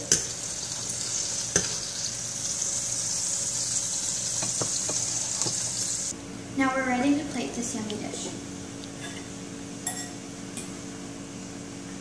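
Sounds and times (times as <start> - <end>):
oil sizzling in a frying pan: 0.0 - 6.1.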